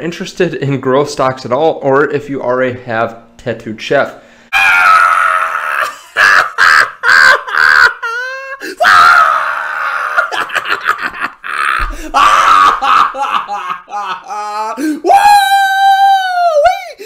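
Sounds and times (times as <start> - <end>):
man screaming laughter: 4.6 - 17.0.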